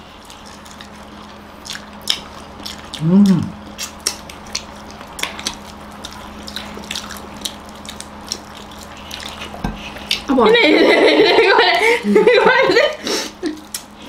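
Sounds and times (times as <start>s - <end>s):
wet chewing and lip-smacking: 0.0s - 10.4s, 13.5s - 14.0s
person humming: 3.0s - 3.6s.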